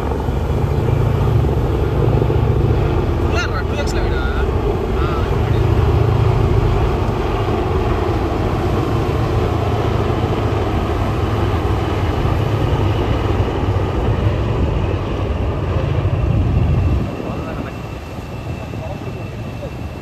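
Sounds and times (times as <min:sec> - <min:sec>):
helicopters flying past: 0:00.0 - 0:20.0.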